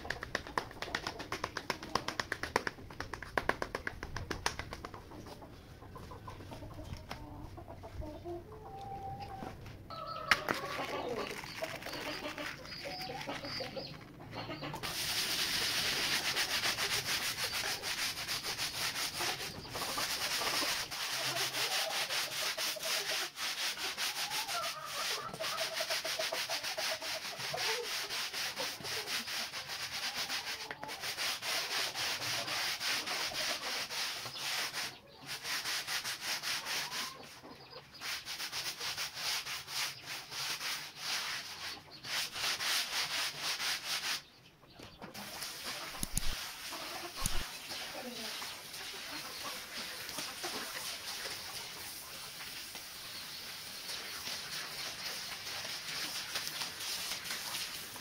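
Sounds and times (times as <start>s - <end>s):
wire brush scrubbing carpet: 14.8s - 36.9s.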